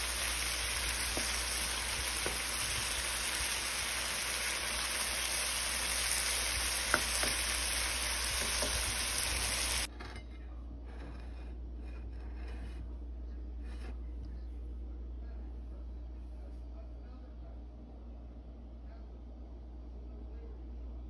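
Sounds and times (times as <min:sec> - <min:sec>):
seafood sizzling in pan: 0:00.0 - 0:09.9
spatula tapping pan: 0:00.8 - 0:02.9, 0:06.6 - 0:09.1.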